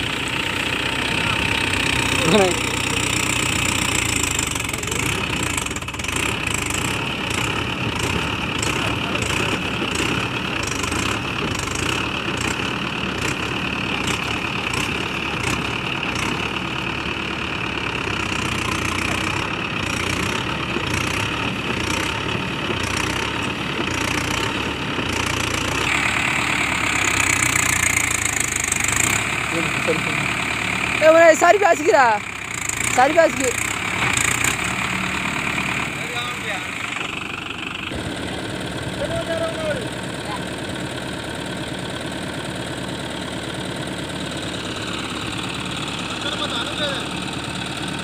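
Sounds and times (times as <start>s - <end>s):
tractor diesel engine pulsing: 0.0s - 48.0s.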